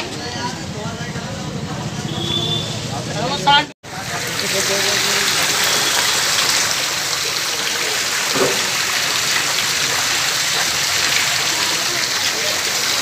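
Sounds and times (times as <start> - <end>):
water rushing in drain: 3.8 - 13.0.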